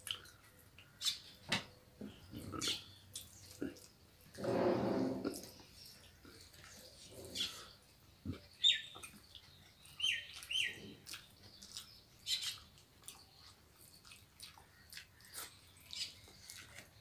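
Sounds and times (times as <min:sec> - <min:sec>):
lip-smacks and chewing clicks: 0:00.0 - 0:01.1, 0:02.7 - 0:04.0, 0:08.3 - 0:17.0
high bird chirps: 0:08.6 - 0:11.0, 0:11.6 - 0:12.7.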